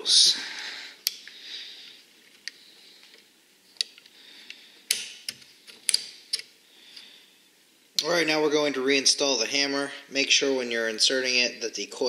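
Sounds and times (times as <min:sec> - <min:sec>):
metal parts clicking and tapping: 0:04.9 - 0:06.5.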